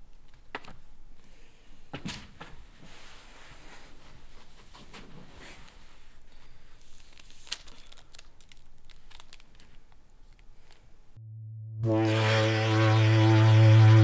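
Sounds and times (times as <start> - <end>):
snack wrapper crinkling: 6.8 - 10.9
buzzy synthesizer drone: 11.2 - 14.0.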